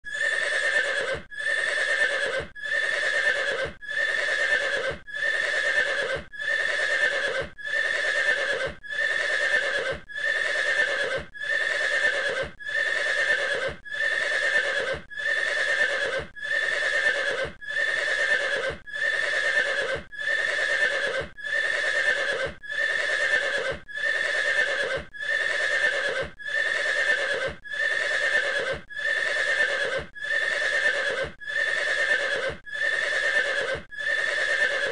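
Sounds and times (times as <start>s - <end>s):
horse call: 0.1s - 34.9s.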